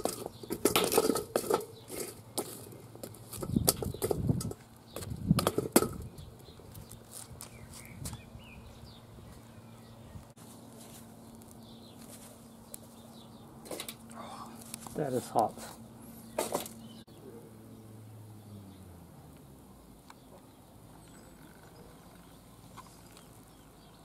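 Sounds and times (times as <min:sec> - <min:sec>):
charcoal clattering in steel bowl: 0:00.0 - 0:04.6.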